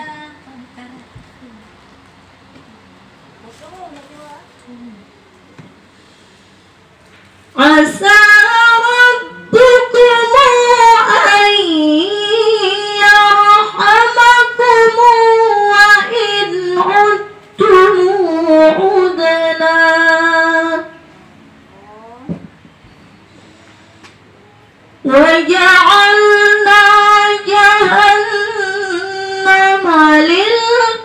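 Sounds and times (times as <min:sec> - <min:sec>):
woman chanting into a microphone: 0:07.6 - 0:21.1, 0:25.0 - 0:31.0.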